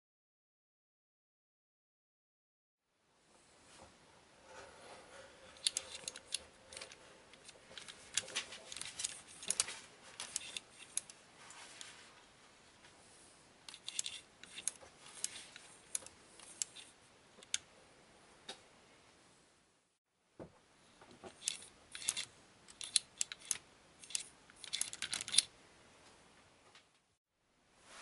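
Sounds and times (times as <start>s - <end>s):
plastic parts clicking and clattering: 5.5s - 12.0s, 13.7s - 17.7s, 21.1s - 25.5s.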